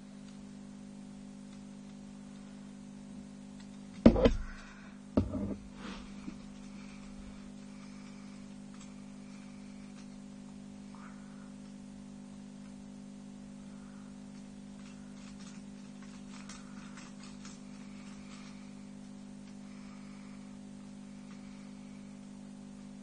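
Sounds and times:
low electrical hum: 0.0 - 23.0
plastic parts clattering: 14.8 - 18.6.

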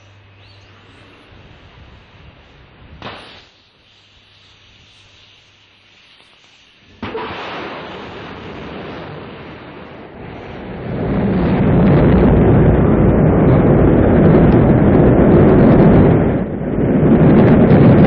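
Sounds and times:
rocket engines roaring: 6.9 - 18.0.

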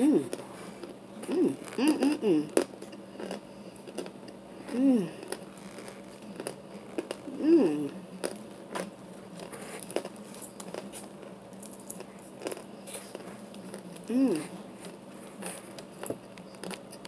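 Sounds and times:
crunchy bites of hard food: 0.3 - 14.1
person humming: 1.2 - 2.6, 4.6 - 5.3, 7.3 - 8.0, 14.0 - 14.6.

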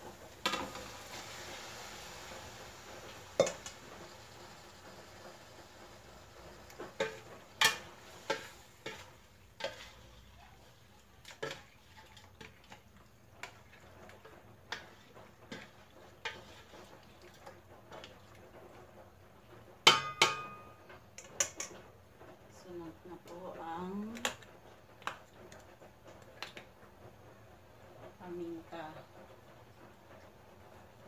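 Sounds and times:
spatula scraping in metal pot: 6.7 - 12.7, 14.7 - 16.9
utensil clanging against pot: 19.9 - 21.8.

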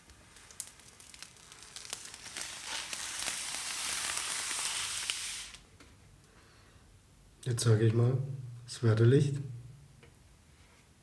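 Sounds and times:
plastic film peeling off glass: 0.0 - 5.7.

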